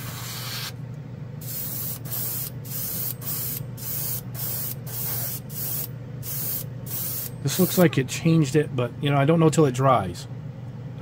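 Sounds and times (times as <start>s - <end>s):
airbrush hissing bursts: 0.0s - 0.8s, 1.4s - 7.8s
spray booth fan hum: 0.0s - 11.0s.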